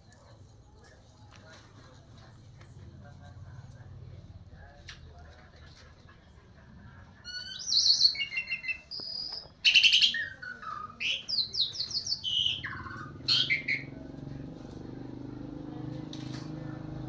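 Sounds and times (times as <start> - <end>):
songbird singing: 7.1 - 17.0.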